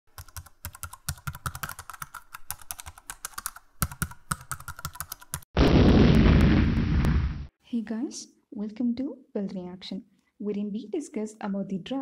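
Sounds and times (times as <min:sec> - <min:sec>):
computer keyboard typing: 0:00.1 - 0:05.5.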